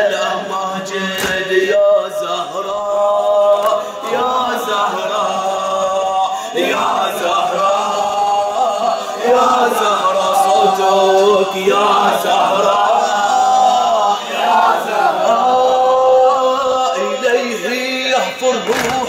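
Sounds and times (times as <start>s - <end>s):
men chanting a lament: 0.0s - 19.0s
person reciting through microphone: 0.0s - 19.0s
hands beating on chests: 1.2s - 1.5s.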